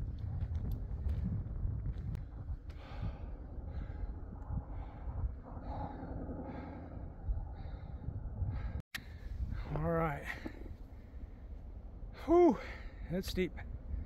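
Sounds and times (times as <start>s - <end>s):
wind rumbling on microphone: 0.0s - 14.0s
person breathing hard: 2.6s - 11.2s.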